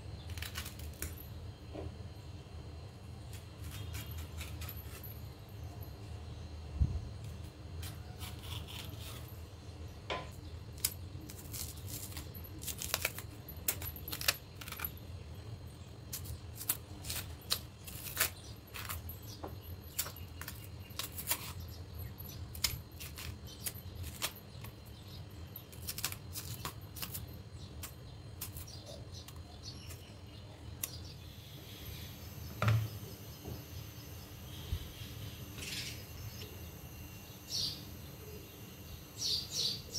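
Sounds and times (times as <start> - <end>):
knife scraping banana peel: 0.2 - 1.2, 3.3 - 5.2, 7.8 - 9.4, 10.7 - 15.0, 16.1 - 21.8, 22.4 - 24.8, 25.6 - 30.2.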